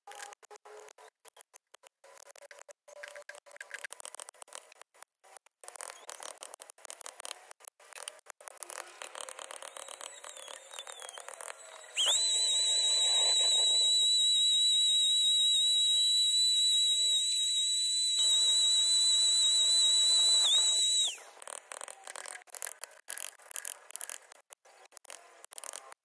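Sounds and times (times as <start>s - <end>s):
small power tool whining: 8.0s - 22.4s.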